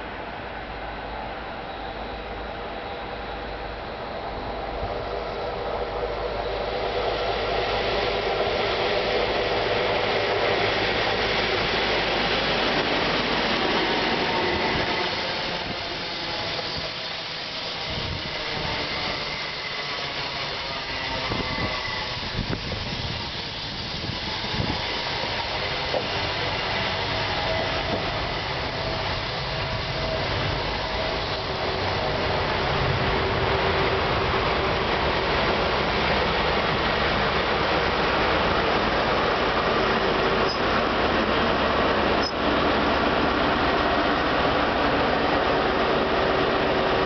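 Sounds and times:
diesel locomotive engine drone: 0.0s - 47.0s
train wheels clicking on rails: 4.2s - 47.0s
faint high brake squeal: 14.4s - 26.0s, 40.4s - 40.8s, 42.2s - 42.4s.

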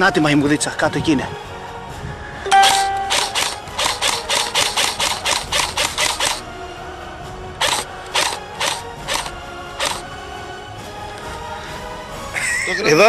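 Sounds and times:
airsoft rifle shots: 2.6s - 6.4s.

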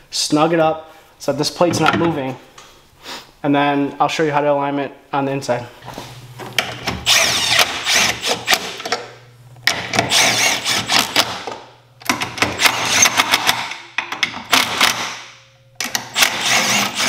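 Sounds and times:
cordless impact wrench hammering: 6.6s - 17.0s.

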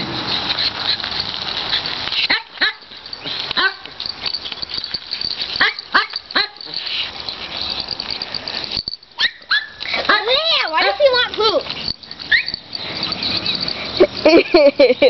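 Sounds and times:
small dog barking in high yips: 3.6s - 3.8s, 5.6s - 7.0s, 9.2s - 11.0s, 12.2s - 13.5s.

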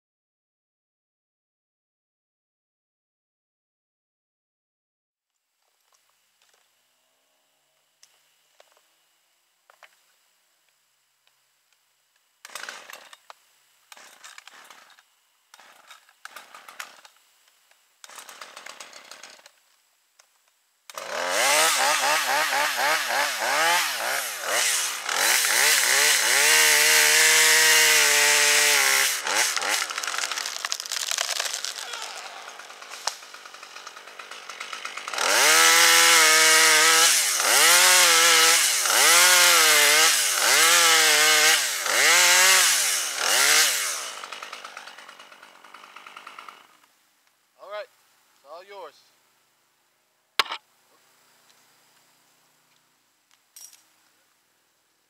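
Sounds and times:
chainsaw revving: 12.4s - 13.2s, 13.9s - 17.1s, 18.0s - 19.5s, 20.9s - 46.9s.

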